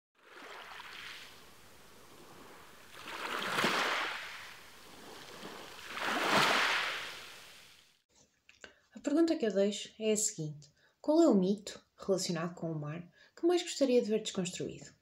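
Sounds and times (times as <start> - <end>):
sea waves washing: 0.2 - 8.0.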